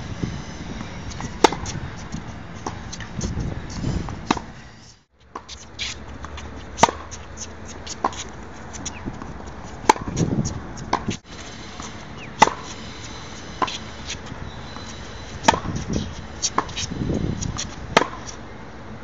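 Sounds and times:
tennis racket hitting ball: 0.8s - 4.5s, 5.3s - 18.4s
distant tennis ball hits and bounces: 0.9s - 3.4s, 5.3s - 11.2s, 11.8s - 12.8s, 13.4s - 18.4s.

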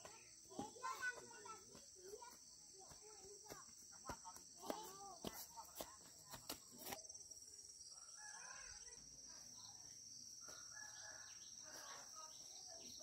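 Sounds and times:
faint rooster crowing: 7.9s - 9.0s, 10.4s - 12.3s.

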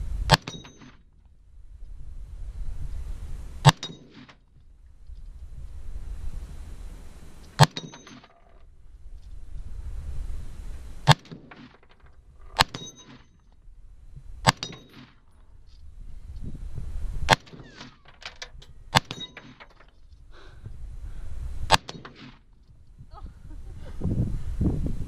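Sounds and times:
rifle shots: 3.6s - 4.4s, 7.6s - 8.4s, 11.0s - 13.3s, 14.4s - 15.3s, 17.3s - 18.0s, 18.9s - 19.7s, 21.7s - 22.5s.

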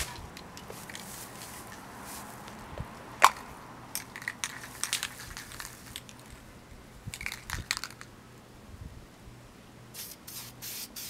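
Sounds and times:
spray can clicking and rattling: 3.2s - 6.2s, 7.2s - 8.1s, 10.0s - 11.0s.

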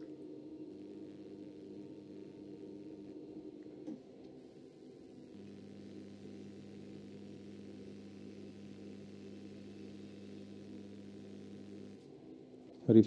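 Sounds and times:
pottery wheel motor hum: 0.0s - 13.0s.

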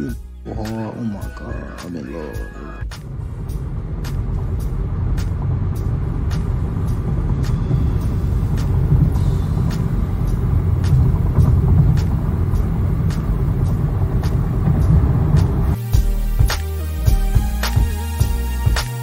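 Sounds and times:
car interior engine rumble: 0.0s - 18.8s
light regular ticking: 2.9s - 15.8s.

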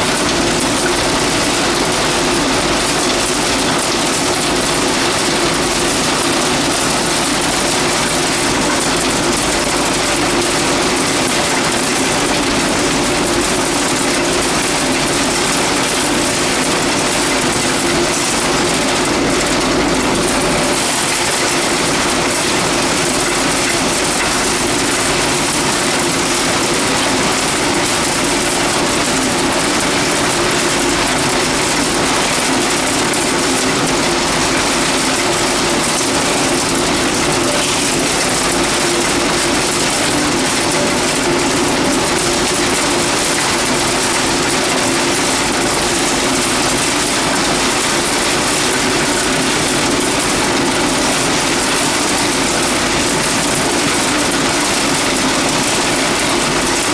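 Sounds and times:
constant machine hum: 0.0s - 56.9s
loud mechanical din of machinery: 0.0s - 56.9s.

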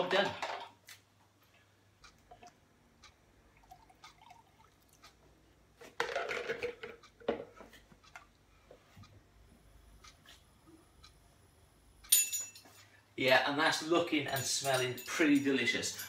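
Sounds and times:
liquid pouring into pot: 3.6s - 5.0s.

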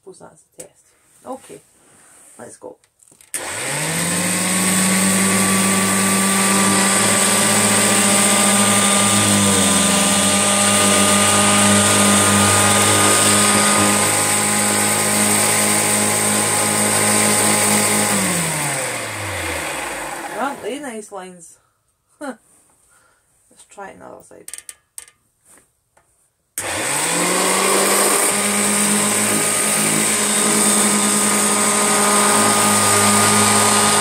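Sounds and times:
vacuum cleaner winding down: 3.3s - 20.8s, 26.6s - 34.0s
upright vacuum cleaner running: 3.4s - 20.8s, 26.6s - 34.0s.

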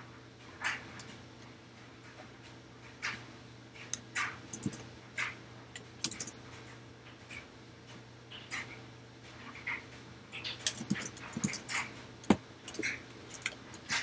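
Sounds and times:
low steady hum: 0.0s - 14.0s
computer mouse and keyboard clicking: 3.8s - 6.7s, 10.3s - 14.0s.

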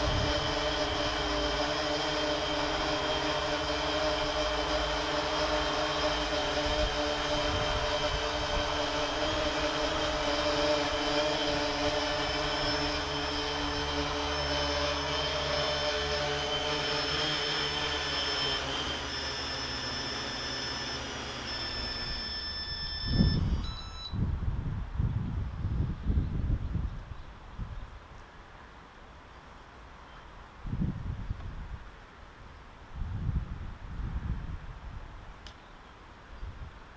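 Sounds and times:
drone propellers whining: 0.0s - 24.3s
high beeping tone: 19.4s - 24.2s.

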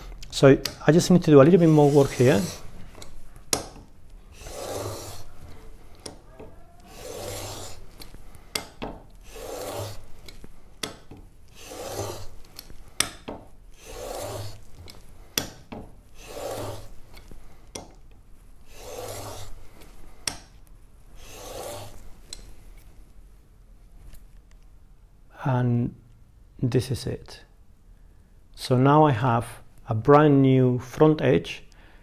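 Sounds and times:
chisel scraping on sandpaper: 1.4s - 3.7s, 4.3s - 6.2s, 6.8s - 10.8s, 11.5s - 13.1s, 13.7s - 15.1s, 16.1s - 17.6s, 18.6s - 20.1s, 21.2s - 22.2s.

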